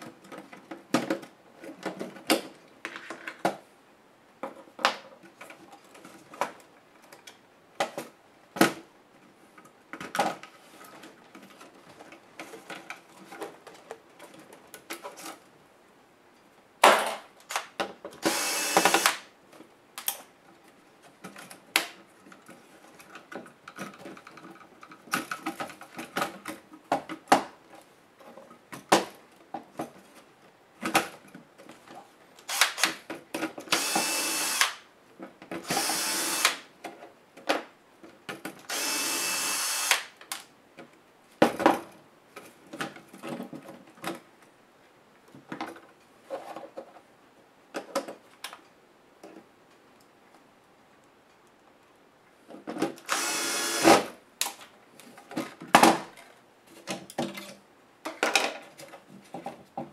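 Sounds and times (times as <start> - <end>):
electric screwdriver whirring: 18.2 - 19.2, 32.5 - 32.9, 33.7 - 34.8, 35.6 - 36.6, 38.7 - 40.1, 53.1 - 54.0.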